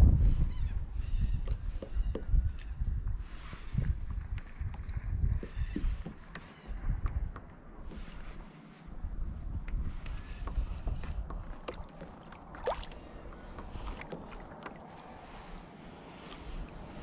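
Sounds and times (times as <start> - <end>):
wind rumble on microphone: 0.0 - 17.0
kayak paddle splashing in water: 11.5 - 15.6.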